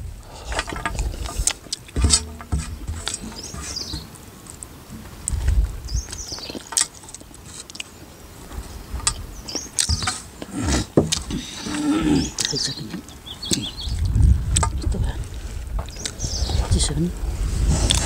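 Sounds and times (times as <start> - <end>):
small birds chirping: 0.2 - 18.0
clicks and taps on steel plates: 0.5 - 4.1.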